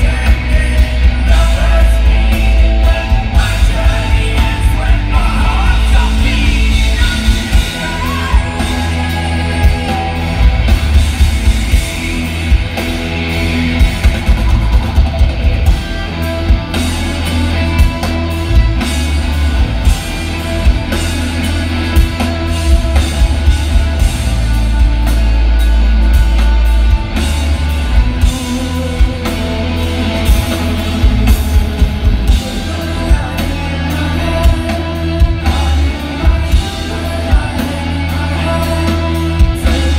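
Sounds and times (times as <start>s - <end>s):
person singing: 0.0s - 13.0s, 27.1s - 39.9s
bass guitar: 0.0s - 39.9s
drums: 0.0s - 39.9s
electric guitars: 0.0s - 39.9s.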